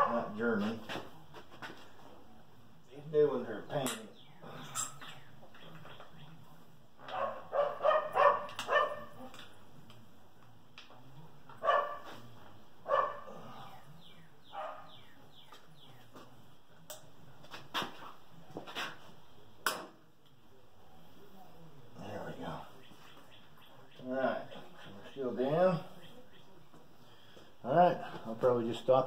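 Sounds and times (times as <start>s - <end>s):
dog barking: 7.0s - 9.2s, 11.6s - 12.2s, 12.8s - 13.3s, 14.5s - 15.0s.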